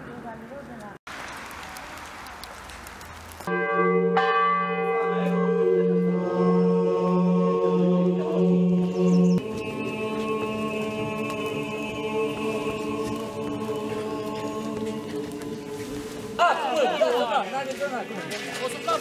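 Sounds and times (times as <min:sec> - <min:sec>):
church bells ringing: 0:03.5 - 0:11.7.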